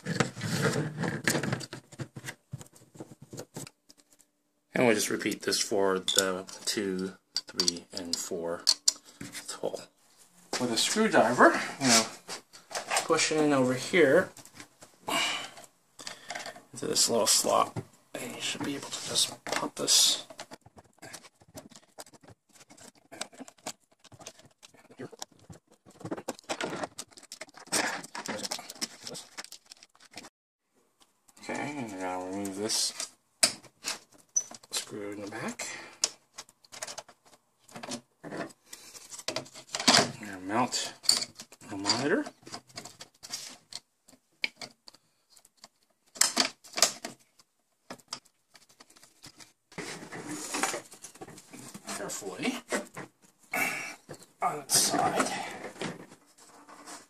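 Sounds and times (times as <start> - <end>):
plastic clips clicking and scraping: 6.1 - 9.4, 18.4 - 30.3, 41.0 - 52.0.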